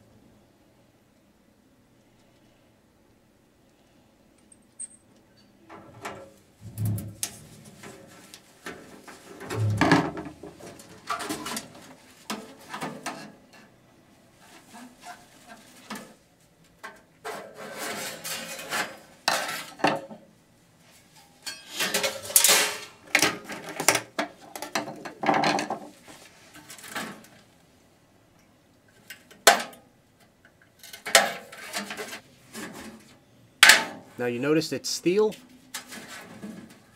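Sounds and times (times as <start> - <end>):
metal parts clattering: 21.4 - 23.8.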